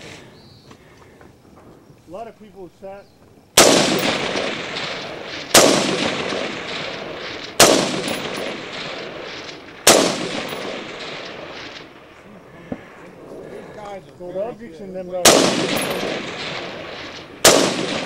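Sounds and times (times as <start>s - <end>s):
rifle shots echoing: 3.5s - 13.4s, 15.1s - 18.0s.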